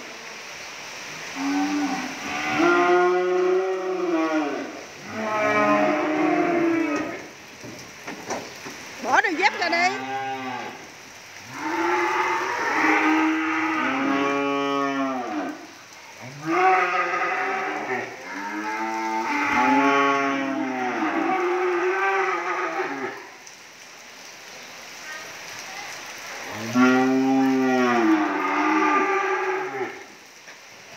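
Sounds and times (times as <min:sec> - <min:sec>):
cattle mooing: 0:01.4 - 0:07.3, 0:09.3 - 0:10.8, 0:11.5 - 0:15.6, 0:16.3 - 0:23.2, 0:26.6 - 0:30.0.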